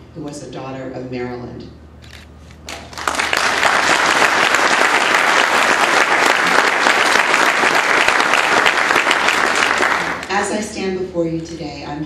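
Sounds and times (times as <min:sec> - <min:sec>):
audience applauding: 0:02.7 - 0:10.4.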